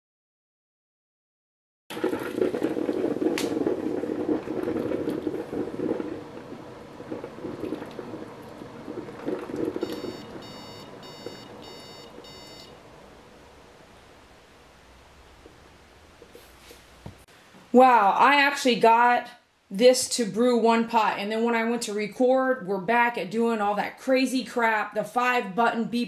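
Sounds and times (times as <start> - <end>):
coffee machine beeping: 9.7 - 12.8.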